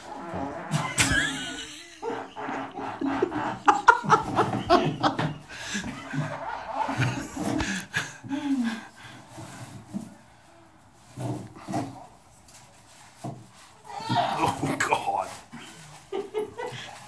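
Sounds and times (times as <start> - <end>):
people laughing: 0.7 - 8.7, 15.6 - 17.0.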